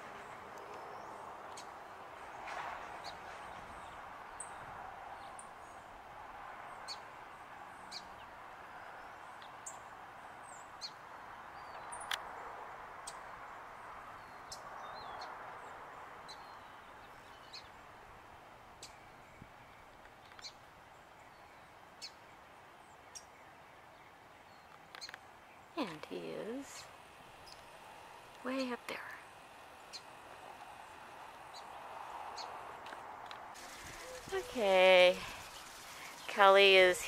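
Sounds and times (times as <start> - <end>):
songbirds chirping: 0.0 - 37.0
steady background hum: 25.8 - 37.0.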